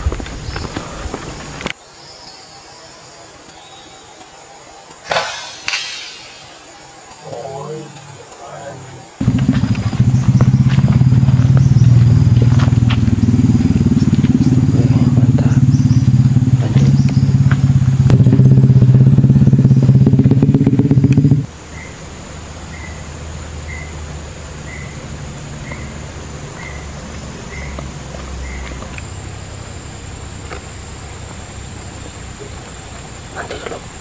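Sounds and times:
small motorcycle engine running: 9.2s - 21.5s.

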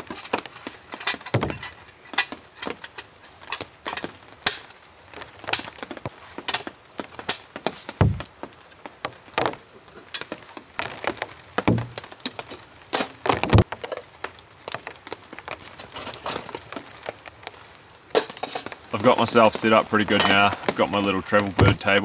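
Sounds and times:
cooking gear clicks and knocks: 0.0s - 22.0s
heavier thumps: 1.4s - 1.8s, 8.0s - 8.3s, 11.6s - 12.0s.

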